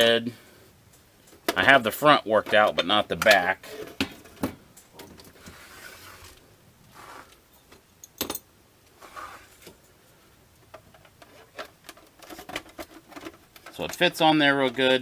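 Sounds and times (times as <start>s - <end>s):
plastic rustling and clicks: 10.7s - 14.9s.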